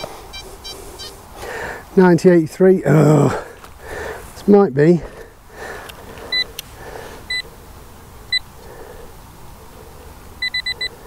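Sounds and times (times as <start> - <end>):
metal detector beeping: 0.0 - 1.2, 7.3 - 7.5, 10.4 - 11.0
hands rustling soil: 3.2 - 7.3.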